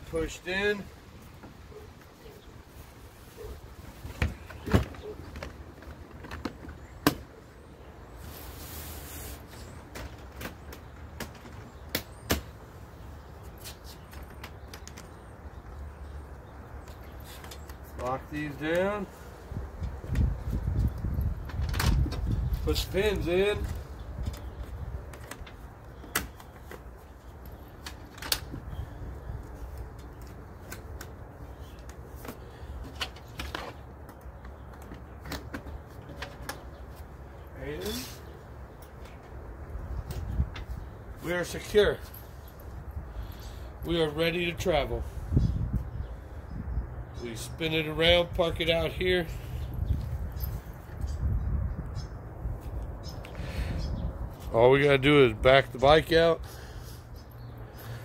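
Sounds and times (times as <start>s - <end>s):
rustle: 8.0s - 10.2s, 36.0s - 39.3s.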